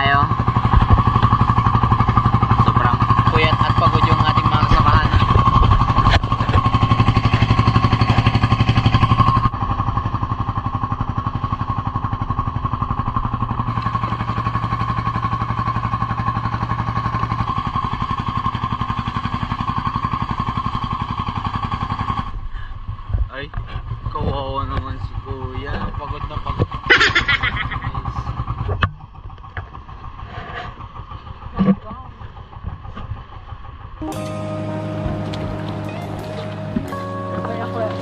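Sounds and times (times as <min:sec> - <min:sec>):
boat engine droning: 0:00.0 - 0:22.9, 0:23.9 - 0:38.0.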